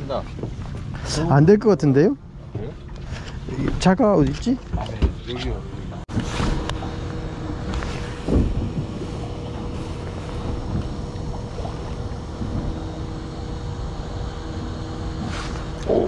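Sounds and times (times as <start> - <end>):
faint steady hum: 0.0 - 16.0
wind: 0.0 - 16.0
water noise: 2.2 - 16.0
bump on boat: 6.1 - 13.6.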